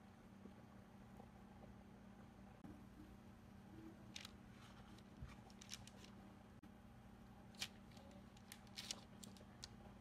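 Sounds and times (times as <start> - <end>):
low steady hum: 0.0 - 10.0
parchment paper crinkling: 4.1 - 6.2, 7.6 - 9.8.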